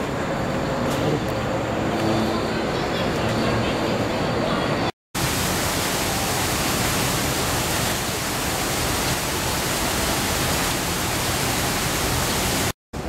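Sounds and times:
waterfall splashing down rocks: 0:05.2 - 0:12.8.

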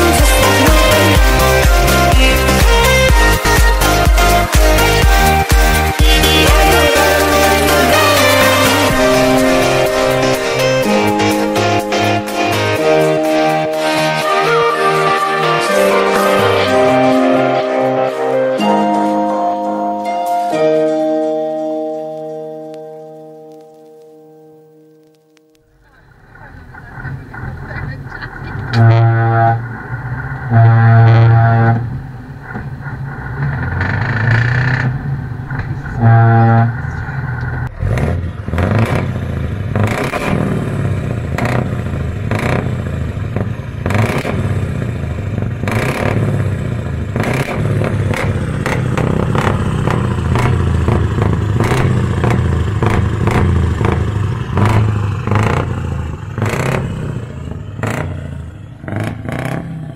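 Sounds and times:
truck air horn blasts: 0:00.0 - 0:19.3, 0:28.6 - 0:32.3, 0:35.8 - 0:37.3
diesel engine rumble: 0:00.0 - 0:24.4, 0:25.0 - 0:59.9.

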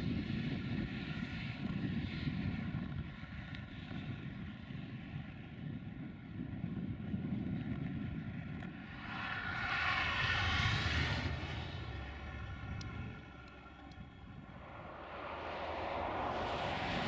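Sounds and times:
distant freight train rumble: 0:08.3 - 0:17.0
steady whine: 0:08.4 - 0:17.0.

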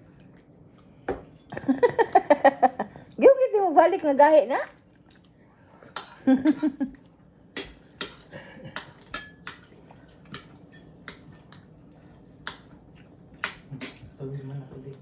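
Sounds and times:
cutlery clinking against plates: 0:07.6 - 0:11.8.

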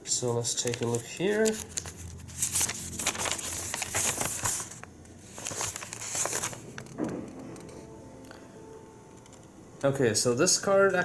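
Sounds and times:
paper booklet rustling: 0:00.1 - 0:07.9.

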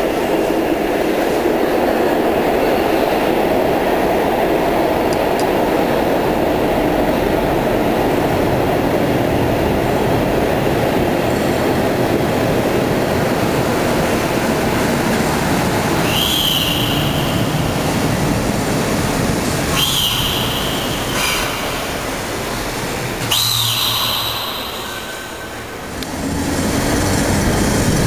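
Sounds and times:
tram rumbling on rails: 0:00.0 - 0:28.0
wheels squealing: 0:15.2 - 0:28.0.

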